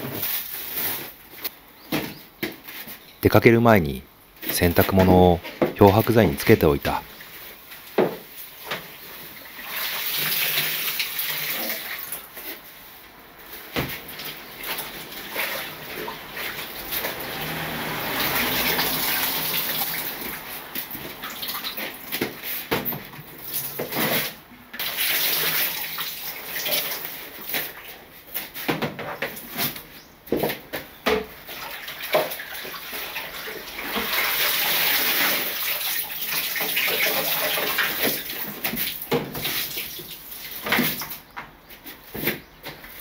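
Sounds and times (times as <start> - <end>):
water splashing in a bathtub: 9.2 - 12.6, 13.6 - 28.0, 31.1 - 41.2.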